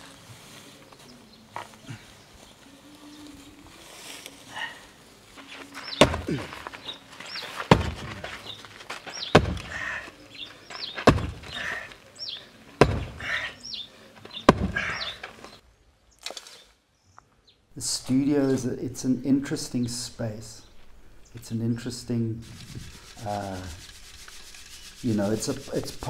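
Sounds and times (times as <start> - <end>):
heavy knocks: 7.7 - 8.3, 9.3 - 9.8, 11.0 - 11.7, 12.8 - 13.3, 14.5 - 15.1.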